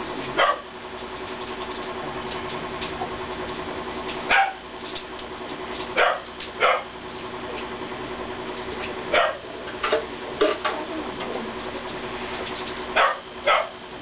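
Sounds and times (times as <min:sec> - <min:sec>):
steady low hum: 0:00.0 - 0:14.0
dog barking: 0:00.4 - 0:00.7, 0:04.3 - 0:04.6, 0:06.0 - 0:06.9, 0:09.1 - 0:09.5, 0:13.0 - 0:13.8.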